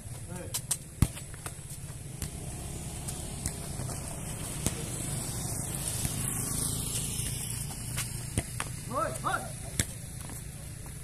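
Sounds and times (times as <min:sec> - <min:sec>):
ball kicked knocks: 0:00.5 - 0:02.4, 0:03.1 - 0:04.0, 0:04.6 - 0:04.9, 0:07.9 - 0:10.4.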